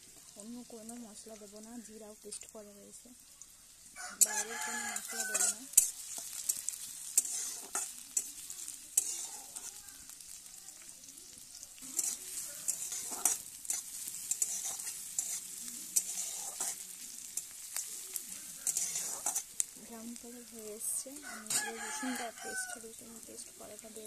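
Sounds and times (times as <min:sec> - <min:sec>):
onions sizzling in hot oil: 0:00.0 - 0:24.0
metal spatula scraping pan: 0:04.0 - 0:10.4, 0:11.8 - 0:19.6, 0:20.8 - 0:22.7.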